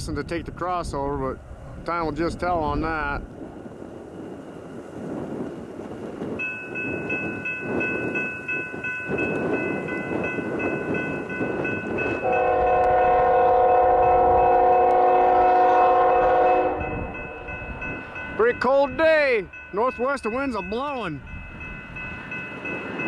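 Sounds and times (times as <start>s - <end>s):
train rumble: 0.0s - 23.0s
train horn blast: 12.2s - 17.5s.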